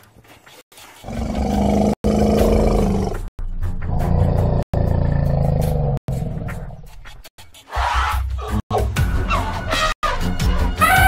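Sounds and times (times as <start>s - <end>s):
loud deep animal roaring: 1.0s - 3.3s.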